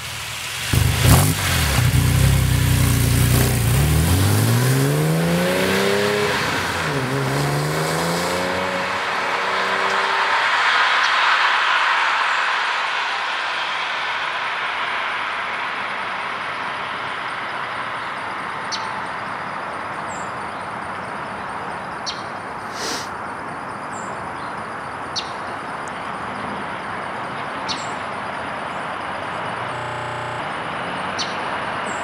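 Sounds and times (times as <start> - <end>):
sports car driving away: 0.4 - 15.6, 28.3 - 32.0.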